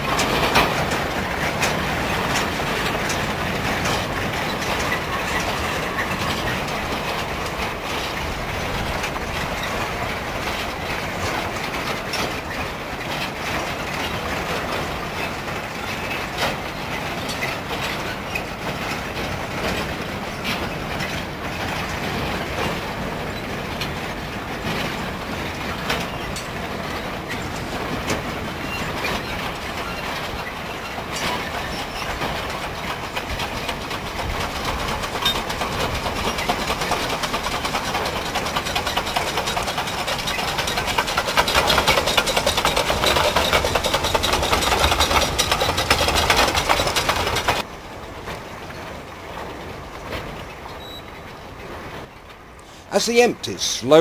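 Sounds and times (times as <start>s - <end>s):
wagons rolling on rails: 0.0s - 54.0s
wheels clanking on rails: 0.0s - 54.0s.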